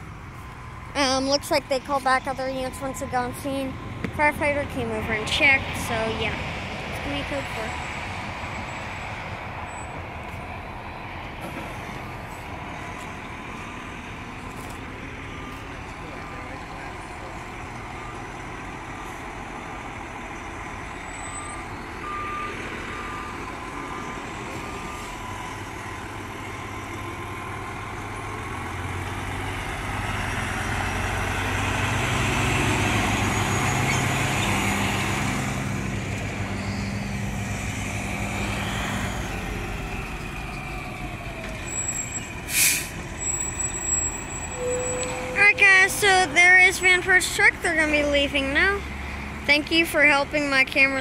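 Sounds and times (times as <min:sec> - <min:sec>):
fire truck diesel engine: 0:00.0 - 0:51.0
reversing beeps: 0:17.8 - 0:19.3, 0:21.0 - 0:25.5, 0:43.2 - 0:45.6
air brake hiss: 0:42.5 - 0:43.0.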